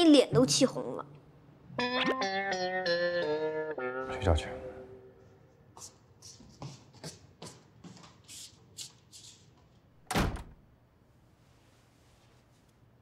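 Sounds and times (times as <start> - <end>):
light footsteps on floor: 5.7 - 9.9
door shutting with a thud: 10.0 - 10.6.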